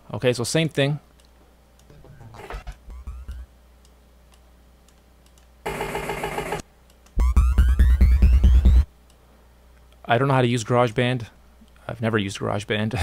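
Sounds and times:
wobble bass synth: 0:02.5 - 0:03.5, 0:07.2 - 0:08.9.

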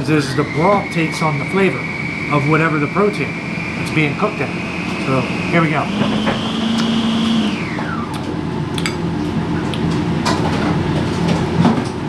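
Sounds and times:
electric motor spinning down: 0:00.2 - 0:08.2.

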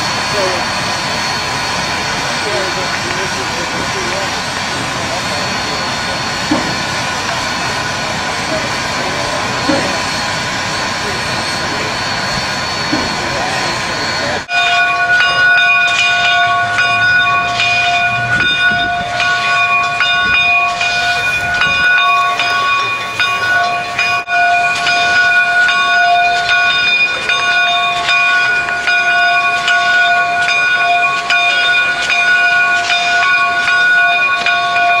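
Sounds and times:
steam hiss: 0:00.0 - 0:14.5
locomotive bell ringing: 0:00.0 - 0:35.0
steam engine chuffing strokes: 0:00.0 - 0:35.0
steam locomotive passing: 0:00.0 - 0:35.0.

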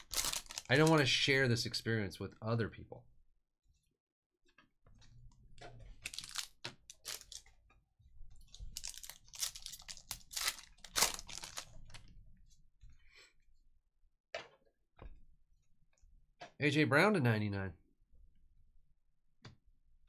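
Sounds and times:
foil wrapper crinkling and tearing: 0:00.0 - 0:01.1, 0:06.0 - 0:07.5, 0:08.4 - 0:12.0.

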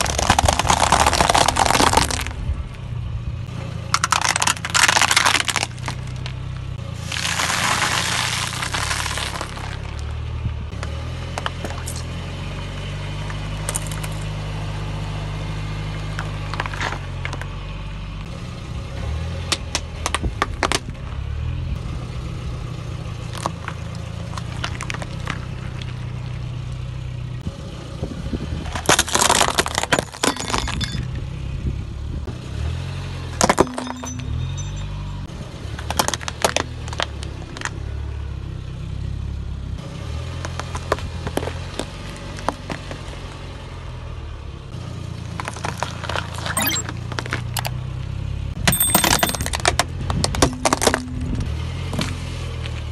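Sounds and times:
tyre crushing objects with cracks: 0:00.0 - 0:02.4, 0:04.0 - 0:06.4, 0:07.0 - 0:10.1, 0:28.7 - 0:31.0
car engine running slowly: 0:00.0 - 0:52.9.

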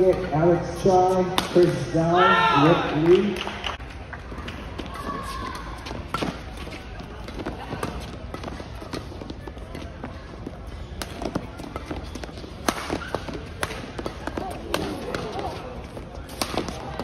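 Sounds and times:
rackets striking shuttlecock: 0:10.5 - 0:15.6, 0:16.2 - 0:17.0.

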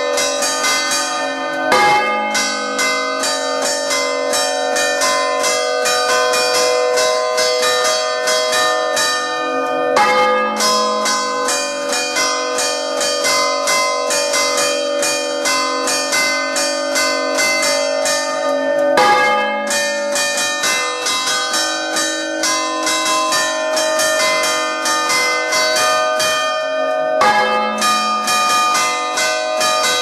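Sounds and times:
small church bells chiming rapidly: 0:00.0 - 0:30.0.

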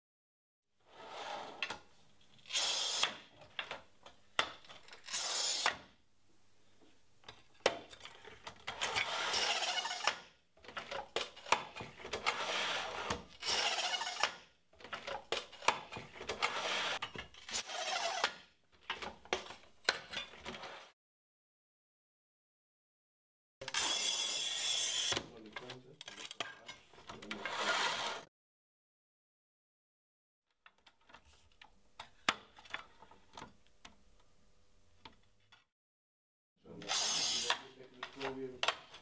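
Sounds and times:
tile cutter scratching tile: 0:02.4 - 0:03.3, 0:05.0 - 0:06.0, 0:08.7 - 0:10.2, 0:11.4 - 0:14.4, 0:15.5 - 0:18.4, 0:27.2 - 0:28.3, 0:36.8 - 0:37.7.

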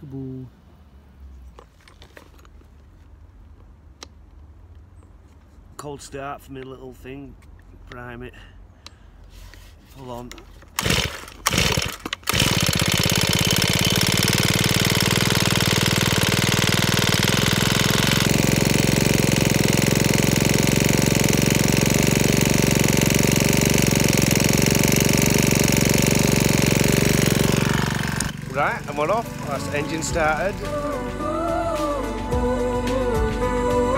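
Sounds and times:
strimmer engine running: 0:10.3 - 0:33.9.

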